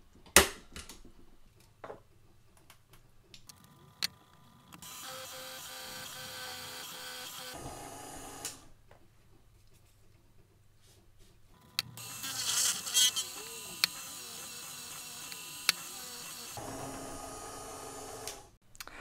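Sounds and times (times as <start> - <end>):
drill press buzzing whine: 4.8 - 8.6, 11.6 - 18.6.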